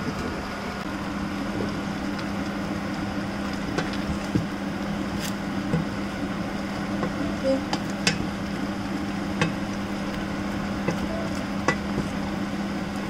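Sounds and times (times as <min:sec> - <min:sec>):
kitchen appliance humming: 0:00.0 - 0:13.0
pot boiling: 0:00.0 - 0:13.0
wooden spoon tapping steel pot: 0:09.4 - 0:09.6, 0:10.8 - 0:12.2.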